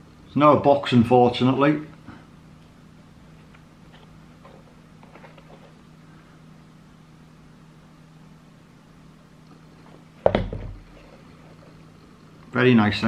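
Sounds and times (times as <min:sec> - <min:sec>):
steady low hum: 0:00.0 - 0:13.0
faint rustling of trainers: 0:03.3 - 0:06.0
loud thump: 0:10.2 - 0:10.8.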